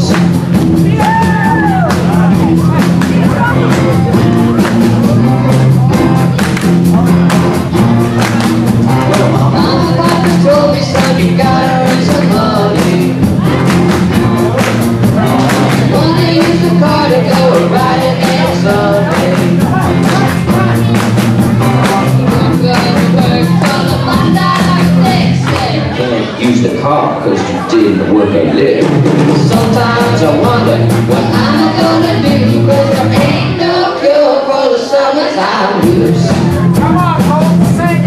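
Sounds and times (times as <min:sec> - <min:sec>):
live rock band playing: 0:00.0 - 0:34.4, 0:35.4 - 0:38.0
young voices singing together: 0:07.1 - 0:27.1, 0:28.7 - 0:37.2.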